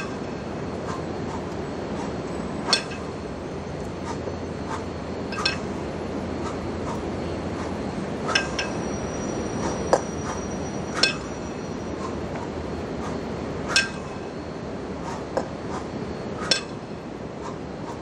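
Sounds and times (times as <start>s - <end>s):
steady background noise: 0.0s - 18.0s
kettlebells clanking: 2.6s - 3.2s, 4.8s - 5.9s, 8.2s - 11.5s, 13.6s - 14.3s.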